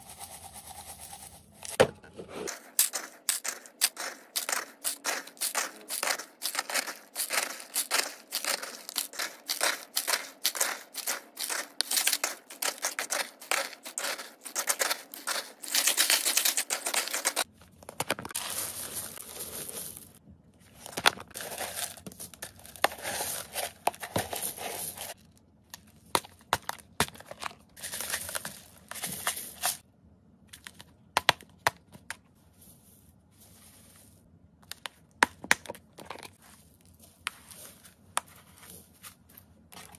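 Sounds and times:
dry food pattering onto plastic: 2.5s - 20.0s
plastic bags crinkling: 2.5s - 20.2s.

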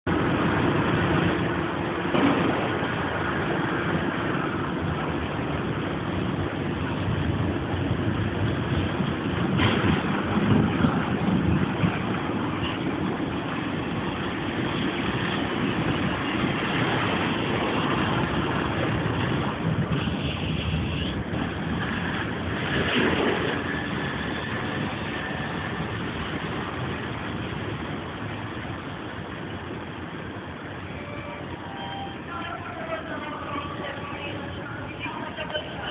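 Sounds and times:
road traffic passing: 0.0s - 35.9s.

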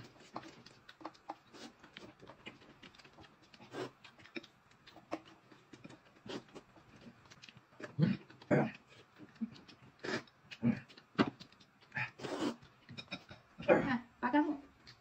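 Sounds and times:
chewing and crunching cereal: 0.0s - 13.7s, 14.6s - 15.0s
slurping noodles: 12.0s - 12.6s.

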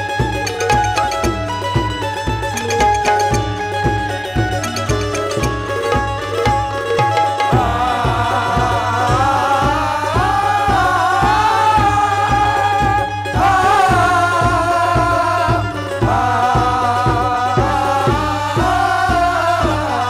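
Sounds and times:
hand drum beat: 0.0s - 20.0s
harmonium: 0.0s - 20.0s
person singing long wavering lines: 4.6s - 20.0s.

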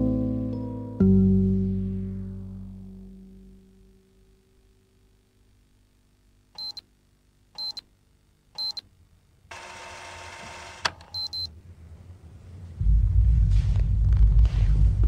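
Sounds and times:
alarm clock beeping: 6.6s - 6.8s, 7.6s - 7.8s, 8.6s - 8.8s, 10.0s - 11.5s
deep low rumble: 11.6s - 15.0s.

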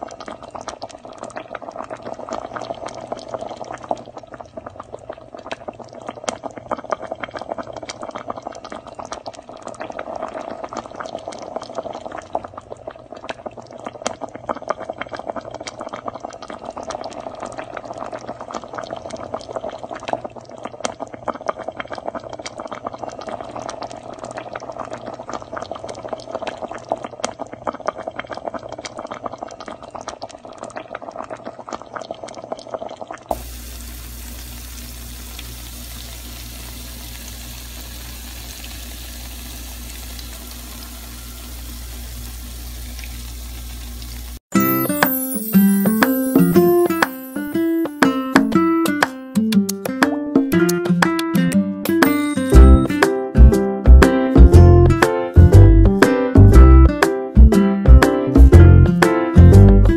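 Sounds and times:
stew boiling in a pot: 0.0s - 44.4s.

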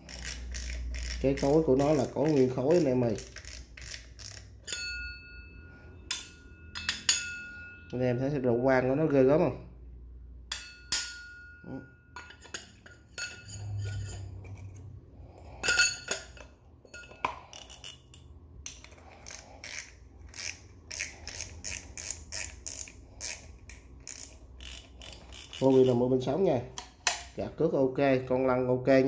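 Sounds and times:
metal fishing reel clinking: 0.0s - 8.0s, 10.5s - 14.8s, 15.5s - 26.3s.

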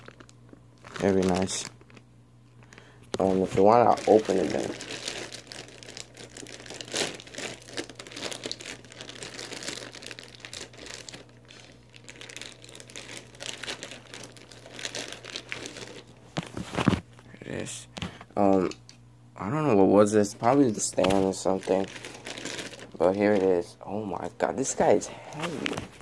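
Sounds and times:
plastic bag crinkling: 0.0s - 17.2s, 20.3s - 23.8s.

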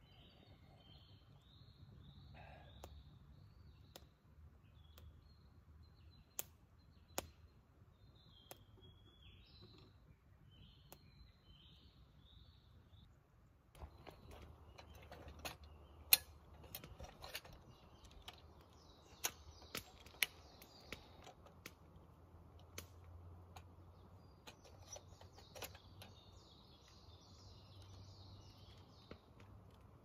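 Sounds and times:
bird chirping: 0.0s - 30.0s
campfire crackling and popping: 6.2s - 7.5s, 17.6s - 23.9s.

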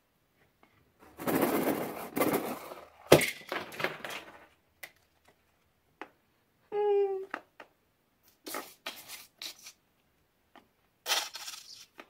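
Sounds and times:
plastic beads pouring: 11.0s - 11.9s.

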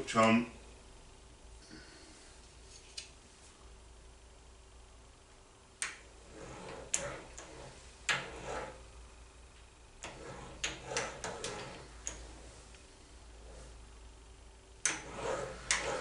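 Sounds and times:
brief metal scrapes: 14.9s - 16.0s.

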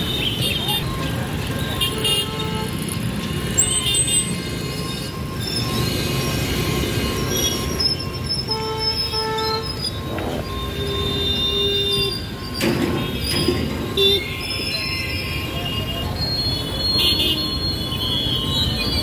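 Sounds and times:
car and motorcycle engines: 0.0s - 8.6s, 9.4s - 11.5s
vehicle horn: 8.5s - 12.2s.

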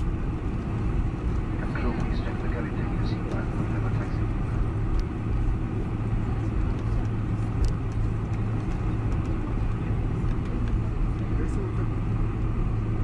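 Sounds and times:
aircraft cabin rumble: 0.0s - 13.0s.

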